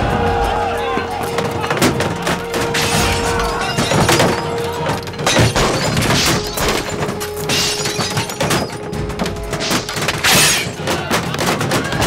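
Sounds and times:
background music: 0.0s - 12.0s
thuds and crashes: 1.3s - 12.0s
glass shattering: 2.5s - 12.0s.

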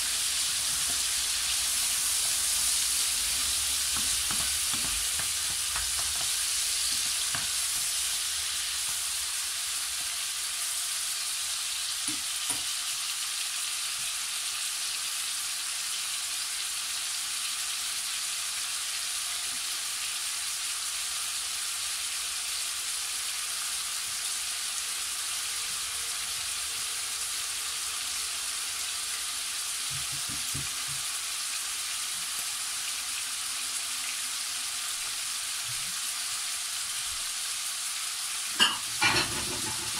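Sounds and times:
meat sizzling in a frying pan: 0.0s - 39.9s
wooden spatula stirring: 3.6s - 8.0s.

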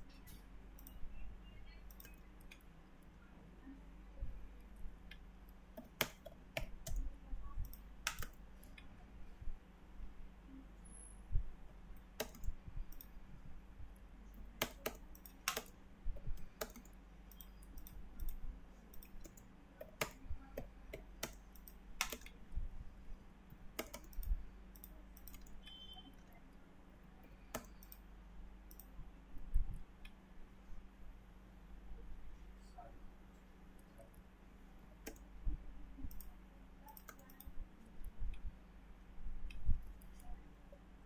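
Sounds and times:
mouse clicks: 0.0s - 2.7s, 5.0s - 8.9s, 12.0s - 13.1s, 14.4s - 22.4s, 23.7s - 26.4s, 27.2s - 28.1s, 28.7s - 30.2s, 35.0s - 35.3s, 36.0s - 37.6s
low steady hum: 0.0s - 41.0s
keyboard keystrokes: 5.8s - 8.4s, 12.2s - 13.1s, 14.6s - 22.4s, 23.7s - 25.8s, 27.4s - 28.0s.

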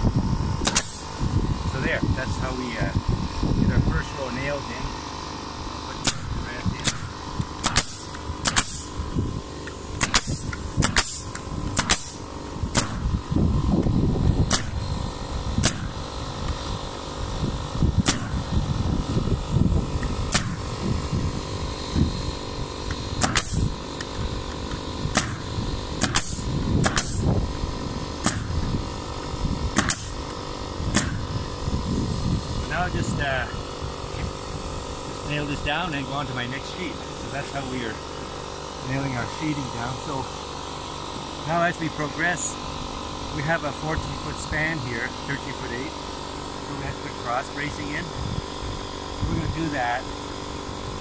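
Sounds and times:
steady mechanical hum: 0.0s - 51.0s
nail gun shots: 0.6s - 1.1s, 6.0s - 9.0s, 9.6s - 13.1s, 14.4s - 14.9s, 15.6s - 16.1s, 18.0s - 18.5s, 20.0s - 20.7s, 22.9s - 24.2s, 25.1s - 27.3s, 28.2s - 28.7s, 29.7s - 31.3s.

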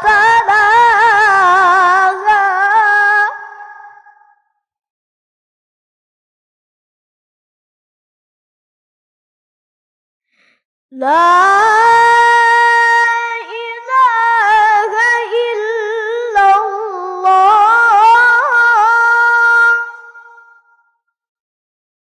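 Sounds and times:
boy reciting melodically: 0.0s - 3.6s, 11.0s - 20.2s.

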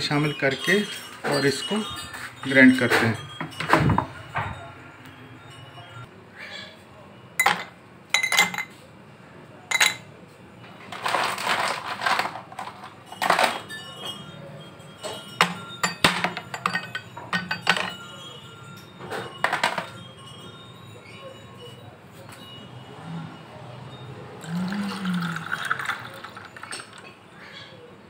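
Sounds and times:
ice cubes clinking in glasses: 0.0s - 4.1s, 9.7s - 10.0s, 10.9s - 20.2s, 24.4s - 27.2s.

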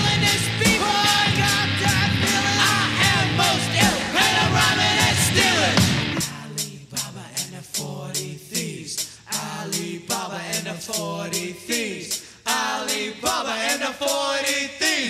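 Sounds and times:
song with vocals over beat: 0.0s - 15.0s.

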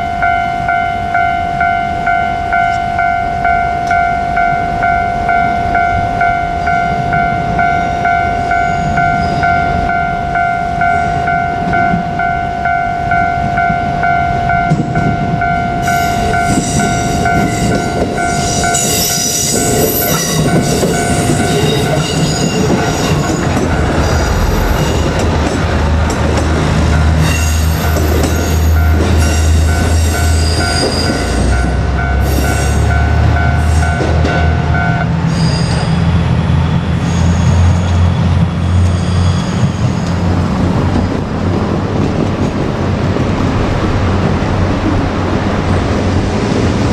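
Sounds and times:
level-crossing bell ringing: 0.0s - 25.8s, 26.6s - 35.1s
train wheel squeal: 15.8s - 25.2s, 27.2s - 34.6s, 35.2s - 40.4s.

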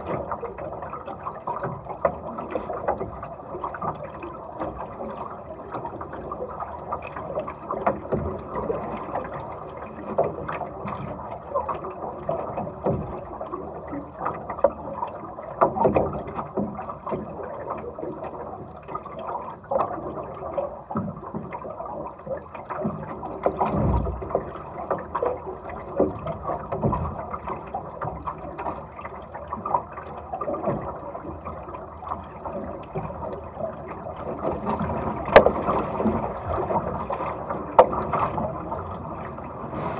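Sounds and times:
water rushing along hull: 0.0s - 39.9s
waves slapping hull: 0.0s - 39.9s.

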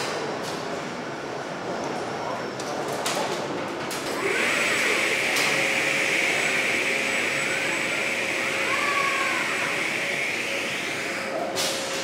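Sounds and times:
machinery whines: 4.1s - 12.0s.

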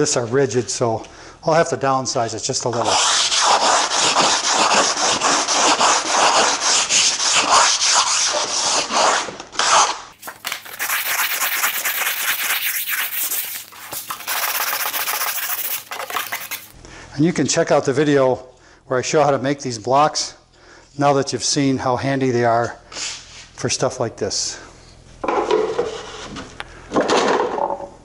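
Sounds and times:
sanding block rubbing: 2.8s - 16.7s.

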